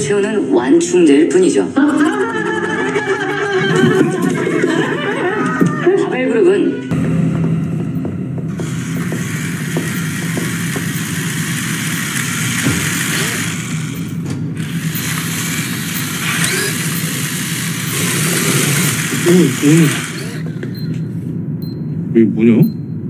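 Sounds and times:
low hum: 6.9 - 23.0
toy car motor whirring: 8.8 - 20.4.

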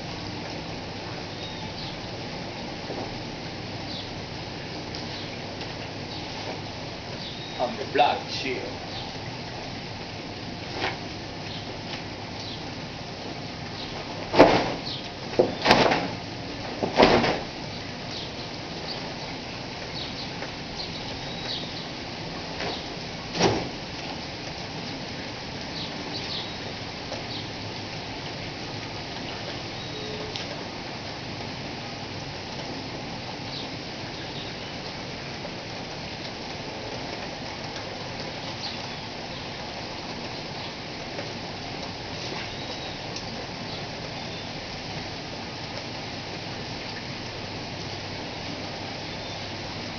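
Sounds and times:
louder raindrops: 0.0 - 49.9
steady rain falling: 0.0 - 49.9.

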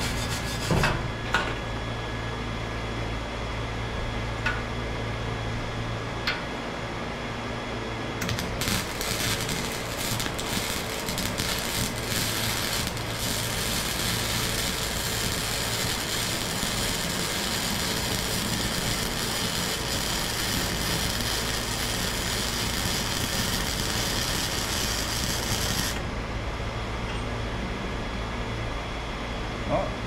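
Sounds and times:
welding arc crackling: 0.0 - 0.8, 8.2 - 26.1.

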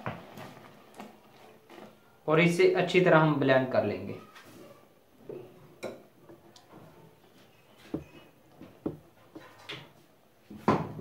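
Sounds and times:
faint knocks and taps: 7.8 - 10.0.

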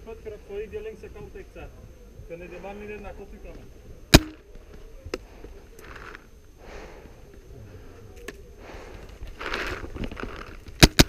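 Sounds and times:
close-up breathing: 5.1 - 10.6.

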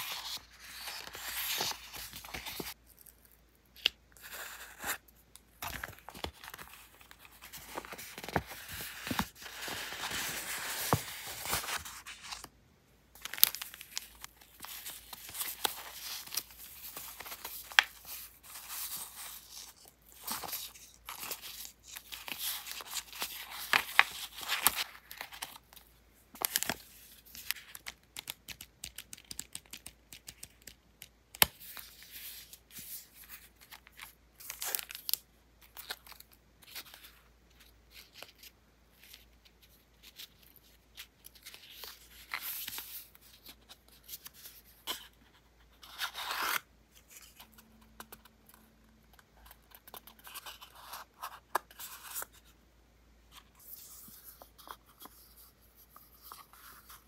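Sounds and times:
paper sheets rustling: 5.6 - 12.5.

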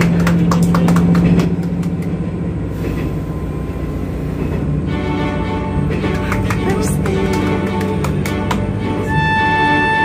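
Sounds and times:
hand claps: 0.0 - 2.2, 6.0 - 8.8
railcar rumble and hiss: 0.0 - 10.0.

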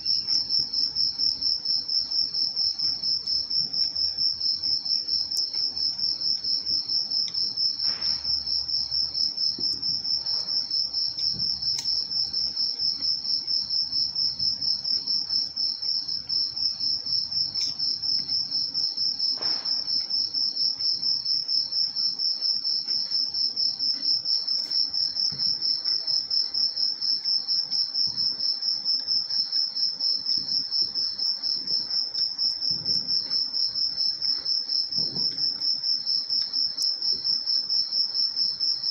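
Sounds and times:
cricket chirping: 0.0 - 38.9.

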